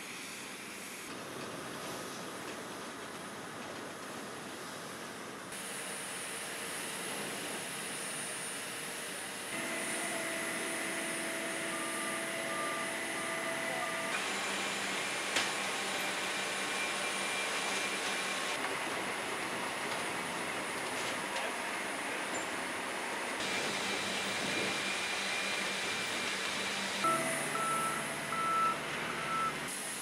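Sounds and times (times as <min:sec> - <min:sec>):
aircraft and ground equipment whine: 0:00.0 - 0:30.0
short beep: 0:09.6 - 0:14.1, 0:27.0 - 0:29.6.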